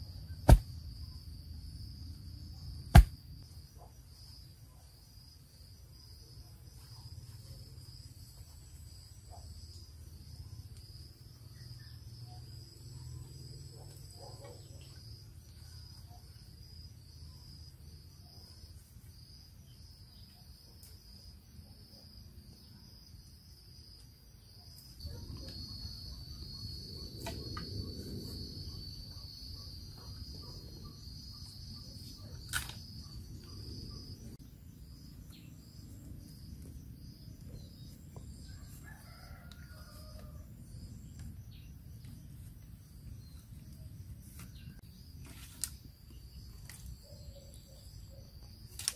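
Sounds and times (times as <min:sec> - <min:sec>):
sharp knock: 0:02.9 - 0:03.2
forest insects whirring: 0:24.4 - 0:48.9.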